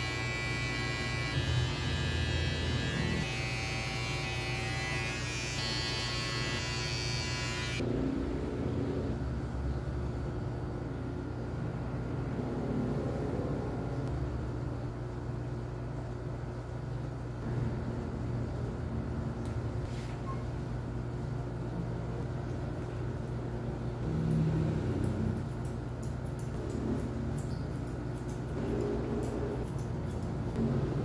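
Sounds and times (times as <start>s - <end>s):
low mechanical hum: 0.0s - 31.0s
scissors snipping hair: 25.0s - 30.6s.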